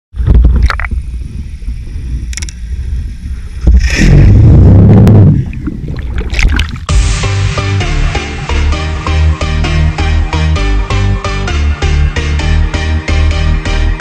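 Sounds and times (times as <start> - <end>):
muffled underwater rumble: 0.2 - 7.0
faint clicks: 2.2 - 2.6
rush of water: 3.6 - 7.0.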